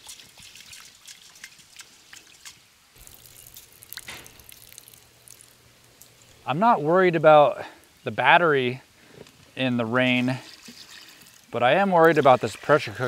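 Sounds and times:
water trickling onto ground: 0.0s - 7.1s, 10.0s - 13.0s.

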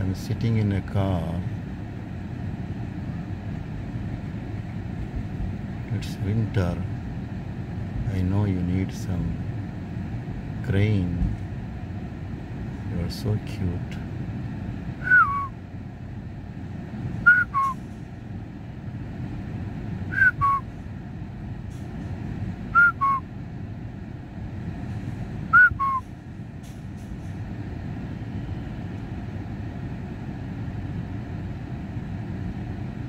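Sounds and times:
low hum of traffic: 0.0s - 33.0s
person whistling two-note call: 15.0s - 15.5s, 17.3s - 17.8s, 20.1s - 20.6s, 22.8s - 23.2s, 25.5s - 26.0s.

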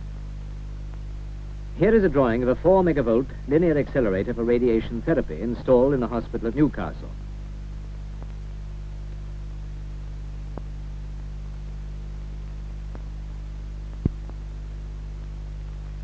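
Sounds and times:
low mains hum: 0.0s - 16.0s
faint clicks: 8.2s - 8.4s.

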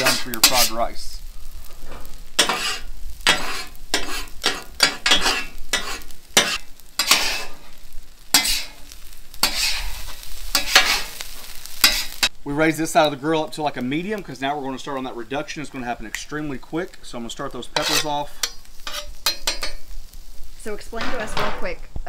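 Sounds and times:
metal spatula scraping griddle: 0.0s - 12.3s, 17.2s - 20.0s
rice sizzling: 0.0s - 22.0s.

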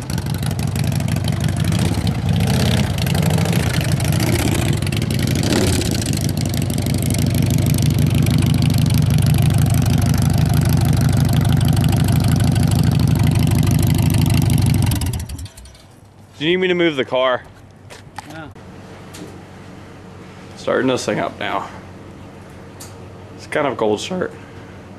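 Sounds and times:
motorcycle engine revving and idling: 0.0s - 15.9s.

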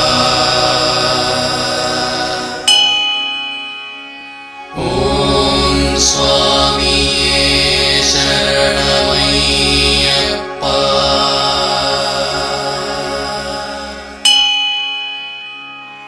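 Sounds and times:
chanting voices: 0.0s - 3.0s, 4.6s - 14.4s
sustained drone: 0.0s - 16.0s
bell strike: 2.6s - 4.6s, 13.8s - 16.0s.

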